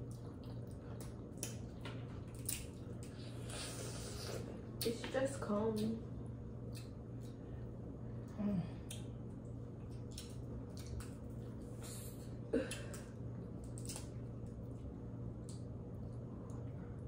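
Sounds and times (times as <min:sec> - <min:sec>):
chewing: 0:00.0 - 0:04.9, 0:08.8 - 0:17.0.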